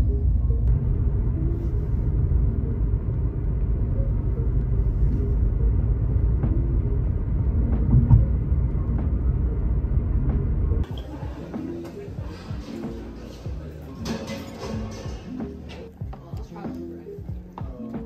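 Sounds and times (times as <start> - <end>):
car road and engine rumble: 0.0 - 13.3.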